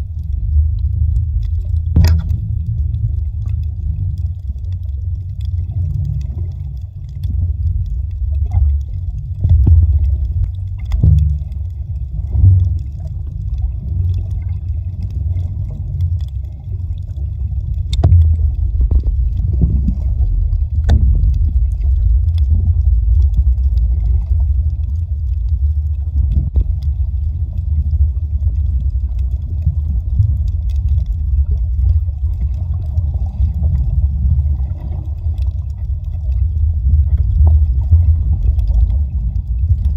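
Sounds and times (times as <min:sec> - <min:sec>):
muffled underwater rumble: 0:00.0 - 0:39.9
sharp clicks and knocks: 0:01.8 - 0:02.7, 0:09.4 - 0:11.7, 0:17.8 - 0:20.0, 0:20.7 - 0:22.5.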